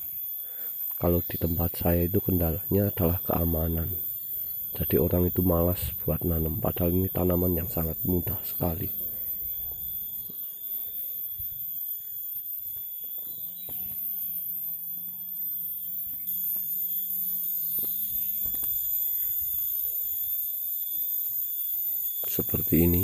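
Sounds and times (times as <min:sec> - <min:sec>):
faint low hum: 0:00.4 - 0:12.2
high-pitched whine: 0:00.9 - 0:23.0.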